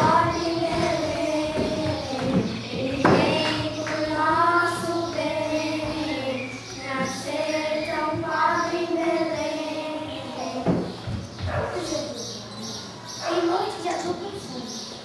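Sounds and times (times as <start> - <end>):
people singing slowly: 0.0 - 11.0.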